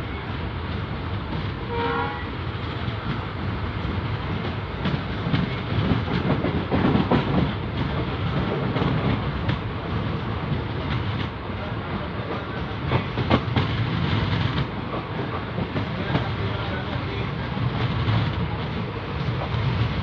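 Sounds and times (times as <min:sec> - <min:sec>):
train wheels rumbling on rails: 0:00.0 - 0:20.0
clickety-clack over rail joints: 0:00.1 - 0:20.0
train horn toot: 0:01.6 - 0:02.4.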